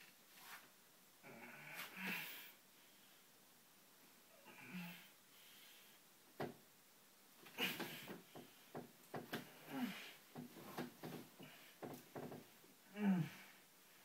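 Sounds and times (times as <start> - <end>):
person grunting: 12.9 - 13.5.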